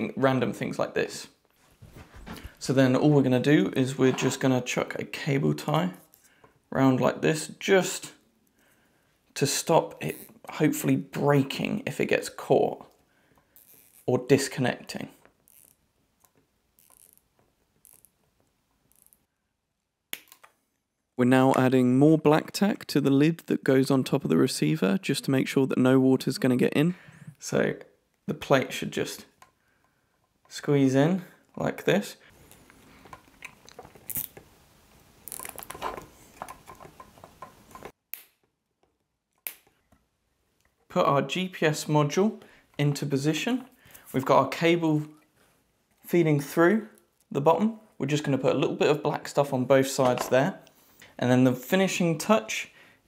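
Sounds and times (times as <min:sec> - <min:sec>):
plastic parts clicking and rustling: 0:32.4 - 0:34.5, 0:35.2 - 0:40.0.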